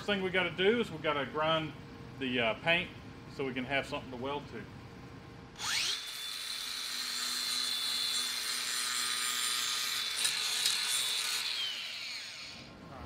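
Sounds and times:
angle grinder grinding metal: 5.6s - 12.7s.

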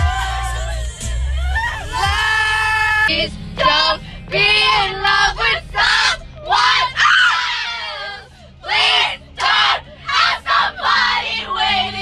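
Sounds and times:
young women singing together: 0.0s - 1.0s, 3.0s - 12.0s
low steady rumble: 0.0s - 12.0s.

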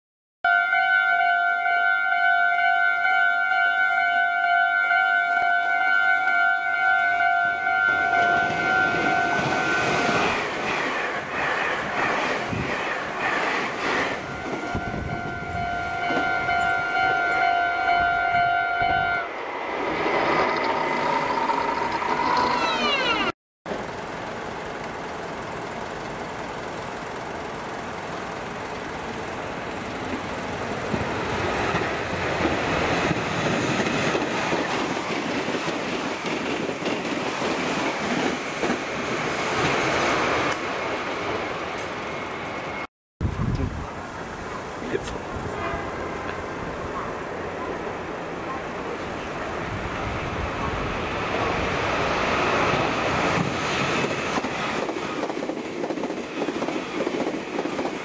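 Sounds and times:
train horn blasts: 0.4s - 10.4s, 14.1s - 19.4s, 45.4s - 46.3s
passing train rumble: 2.8s - 58.0s.

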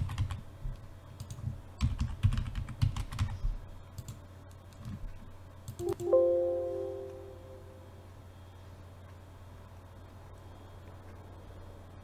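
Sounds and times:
computer keyboard typing: 0.0s - 0.4s, 1.2s - 3.4s.

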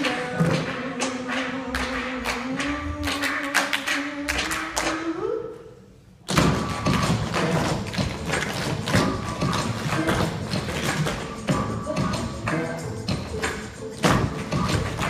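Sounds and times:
upbeat music: 0.0s - 4.8s, 6.3s - 15.0s
hand claps: 0.0s - 5.0s.

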